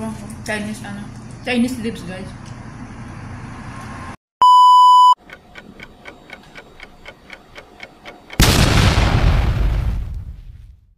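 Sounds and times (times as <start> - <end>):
loud electronic beep: 4.4 - 5.2
clock-like ticking: 5.2 - 8.4
loud boom: 8.4 - 10.9.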